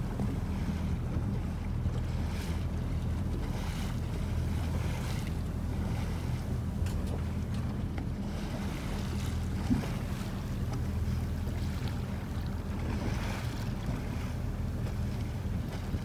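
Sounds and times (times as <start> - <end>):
motorboat engine humming: 0.0 - 16.0.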